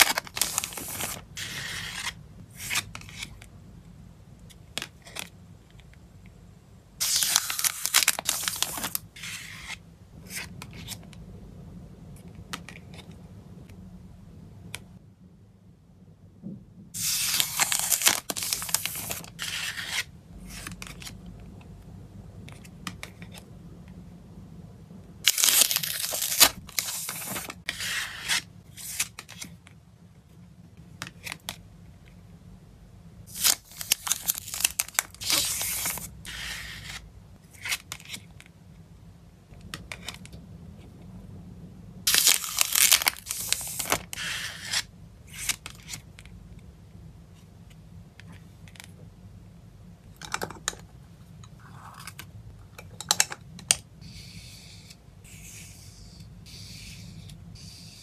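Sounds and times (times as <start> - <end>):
plastic packaging crinkling: 7.0 - 9.0, 25.3 - 27.6, 33.3 - 36.1, 42.1 - 44.2.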